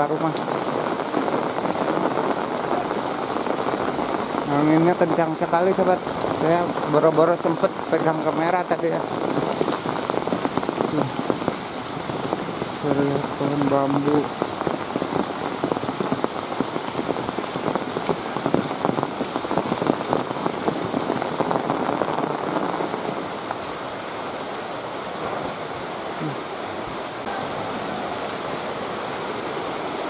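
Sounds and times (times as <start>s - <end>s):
close raindrop hits: 0.0s - 23.7s
rain falling: 0.0s - 30.0s.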